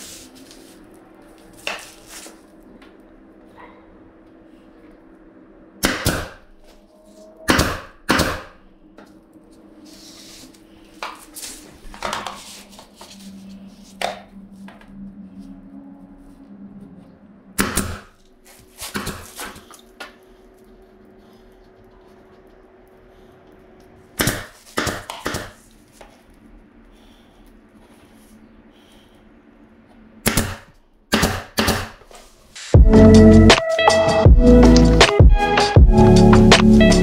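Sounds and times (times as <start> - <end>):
nail gun shots: 30.2 - 32.0.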